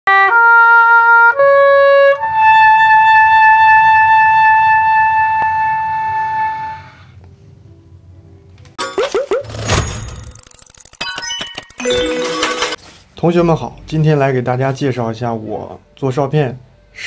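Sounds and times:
oboe playing notes: 0:00.1 - 0:07.1.

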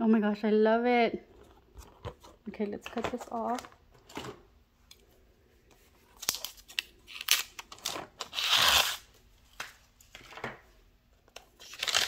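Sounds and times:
plastic film tearing: 0:06.2 - 0:09.1, 0:11.6 - 0:12.0.

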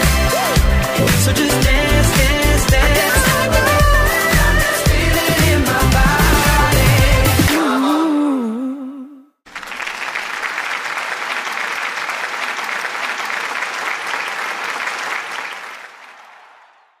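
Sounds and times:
audience applauding: 0:09.5 - 0:17.0.

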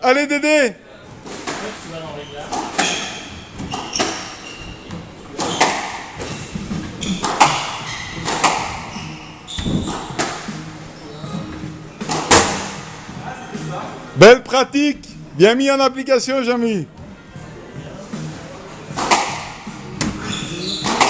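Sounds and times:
shoes squeaking on wooden floor: 0:01.0 - 0:14.2, 0:16.9 - 0:21.0
squash ball hitting rackets and walls: 0:01.2 - 0:13.1, 0:18.9 - 0:21.0.

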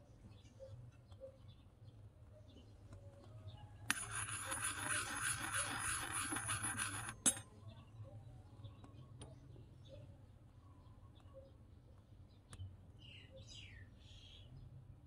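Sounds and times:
metal spoon scraping wok: 0:03.9 - 0:07.3.

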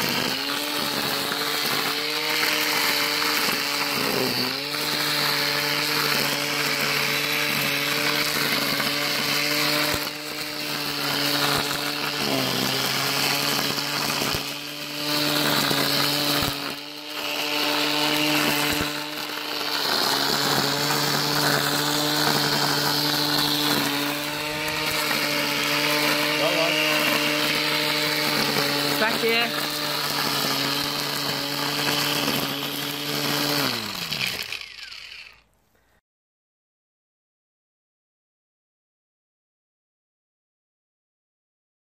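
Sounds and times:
angle grinder motor whine: 0:00.0 - 0:35.5
grass being cut: 0:00.0 - 0:35.6.

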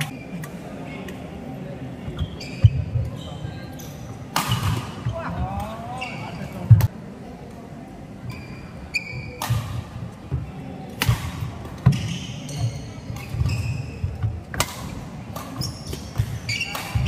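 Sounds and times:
shoe soles squeaking: 0:02.1 - 0:04.1, 0:05.9 - 0:06.6, 0:08.3 - 0:09.4, 0:11.9 - 0:14.2, 0:15.5 - 0:17.0.

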